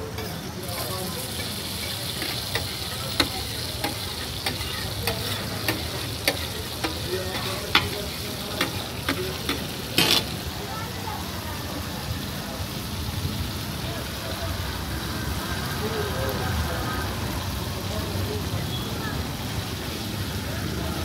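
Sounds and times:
tomatoes sizzling in oil: 0.0 - 21.0
spatula striking metal griddle: 1.3 - 10.4.

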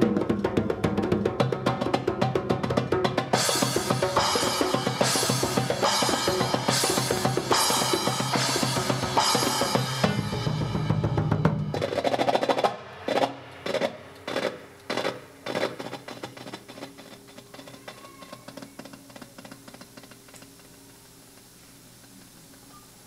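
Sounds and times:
drum kit playing fast: 0.0 - 20.5
cymbal crashes: 3.4 - 15.4.

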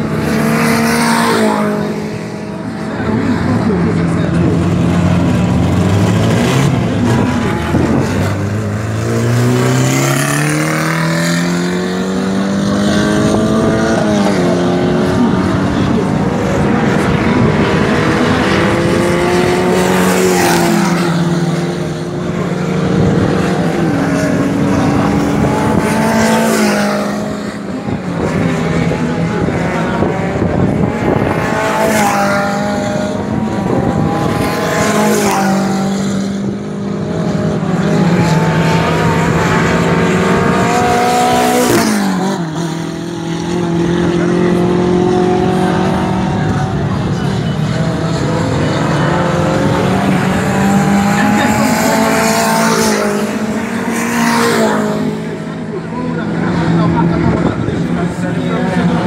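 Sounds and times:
racing car engines revving: 0.0 - 59.0.

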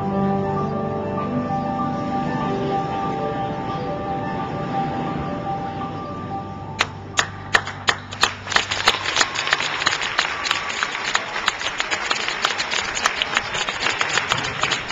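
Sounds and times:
audience applauding: 6.8 - 14.9.

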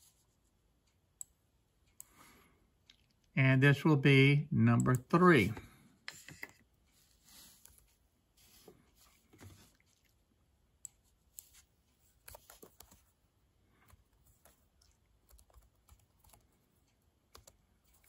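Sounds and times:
faint keyboard keystrokes: 13.8 - 18.0.

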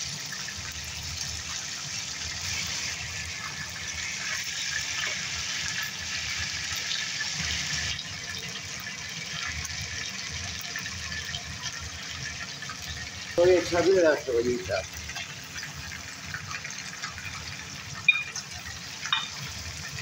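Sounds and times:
chicken frying in oil: 0.0 - 20.0.

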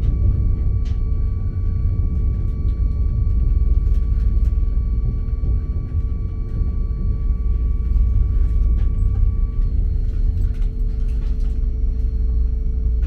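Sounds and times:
faint hums: 0.0 - 13.0
train rumbling: 0.0 - 13.0.

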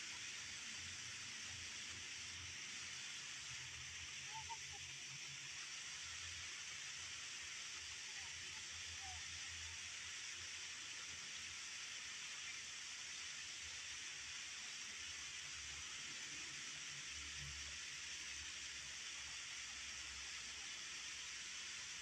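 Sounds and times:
faint chirps: 2.7 - 6.6.

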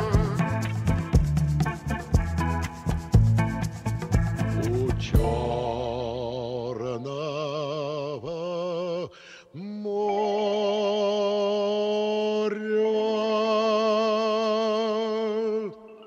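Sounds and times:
man singing with vibrato: 0.0 - 0.7, 4.6 - 16.0.

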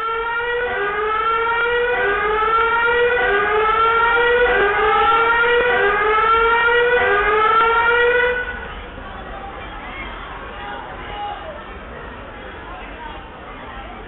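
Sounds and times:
rising and falling siren: 0.0 - 8.8.

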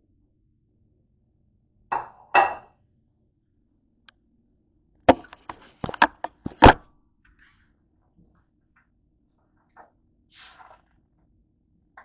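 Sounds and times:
plate knocked on countertop: 1.9 - 2.7
sharp knocks and clatters: 5.1 - 6.8.

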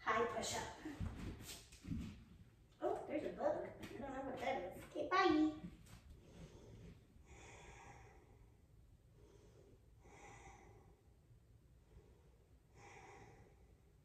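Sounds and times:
soft airy breaths: 5.8 - 14.0.

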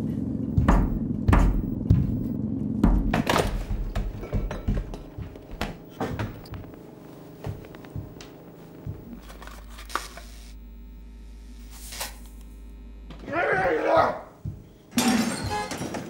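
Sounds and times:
steady low hum: 0.0 - 15.0
objects knocking and clattering: 2.8 - 6.5, 14.9 - 16.0.

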